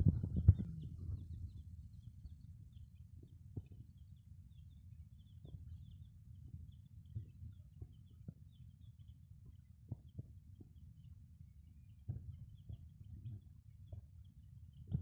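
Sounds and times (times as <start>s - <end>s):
low rumble: 0.0s - 1.6s.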